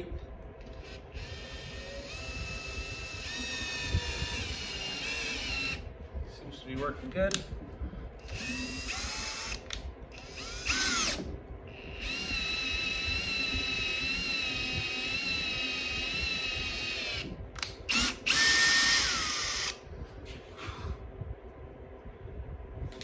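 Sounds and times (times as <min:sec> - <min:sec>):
cordless drill motor whining: 0:00.6 - 0:05.9, 0:08.2 - 0:19.8.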